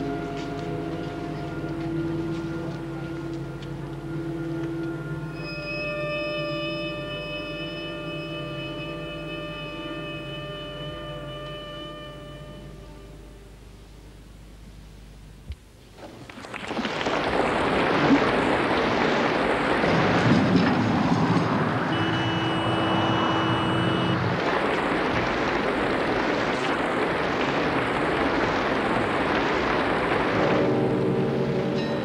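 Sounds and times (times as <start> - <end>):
music: 0.0 - 14.5, 30.4 - 32.0.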